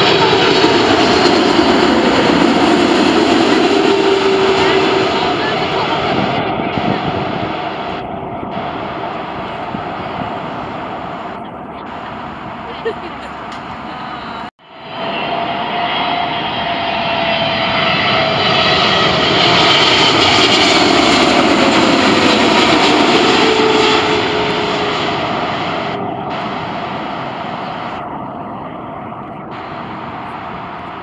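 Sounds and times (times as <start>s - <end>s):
jet airliner passing overhead: 0.0s - 31.0s
engine whine sliding down: 14.7s - 31.0s.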